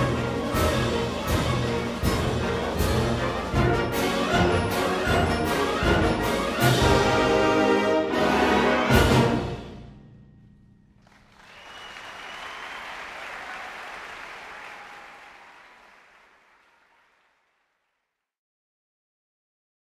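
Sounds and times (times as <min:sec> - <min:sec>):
audience applause: 0:11.0 - 0:18.0.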